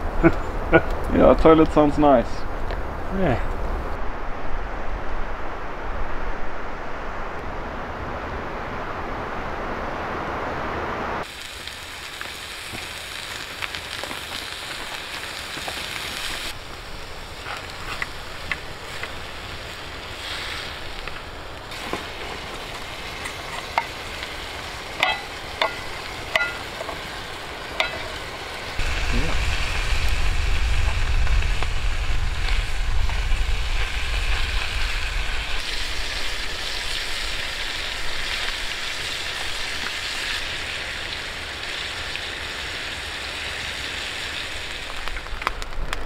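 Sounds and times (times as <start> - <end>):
steady hiss: 0.0 - 46.0
meat sizzling in a pan: 11.2 - 45.5.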